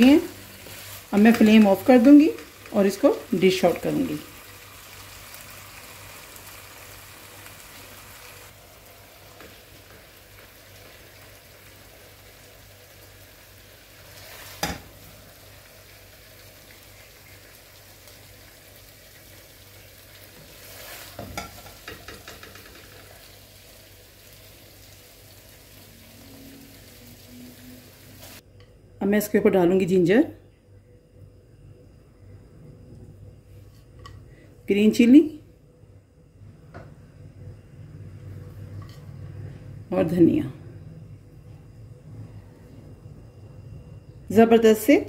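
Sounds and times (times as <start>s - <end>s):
hot pan sizzling: 0.0s - 28.4s
metal spatula scraping in a wok: 20.4s - 23.0s
spatula clanking on wok: 21.2s - 22.9s.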